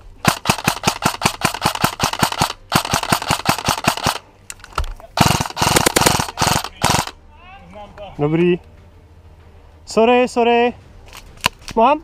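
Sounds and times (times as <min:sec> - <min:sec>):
airsoft rifle firing rapid bursts: 0:00.2 - 0:04.2, 0:05.2 - 0:07.2.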